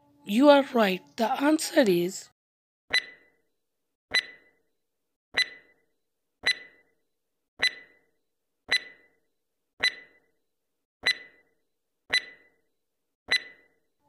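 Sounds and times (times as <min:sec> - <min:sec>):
timer ticks with ring: 0:02.9 - 0:03.4, 0:04.1 - 0:04.6, 0:05.4 - 0:05.8, 0:06.4 - 0:06.9, 0:07.6 - 0:08.1, 0:08.7 - 0:09.2, 0:09.8 - 0:10.3, 0:11.0 - 0:11.5, 0:12.1 - 0:12.6, 0:13.3 - 0:13.8.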